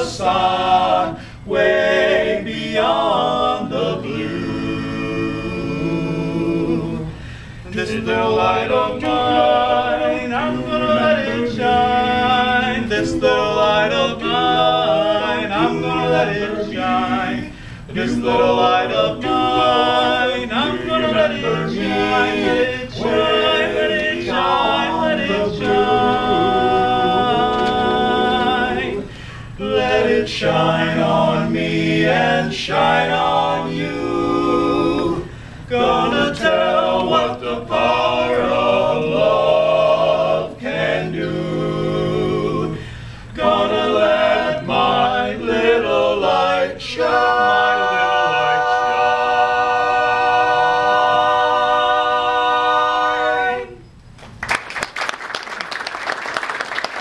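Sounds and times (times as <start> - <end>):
men singing in close harmony: 0.0 - 53.8
short breaths: 7.1 - 7.7, 17.5 - 17.9, 29.1 - 29.6, 35.3 - 35.7, 42.8 - 43.4.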